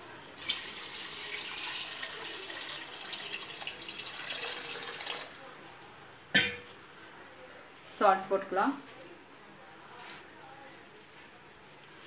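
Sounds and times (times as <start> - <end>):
water pouring into a pot: 0.0 - 6.1.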